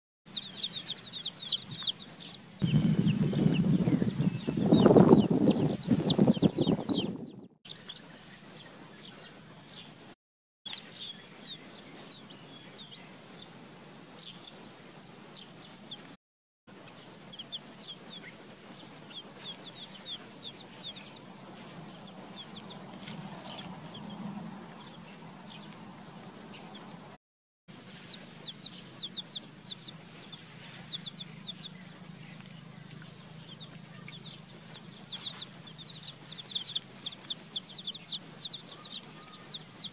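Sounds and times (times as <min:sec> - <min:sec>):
baby chicks peeping: 0:00.3 - 0:10.1, 0:10.7 - 0:13.6, 0:14.2 - 0:16.1, 0:16.8 - 0:27.1, 0:27.7 - 0:39.9
low-pitched sound: 0:02.6 - 0:07.4.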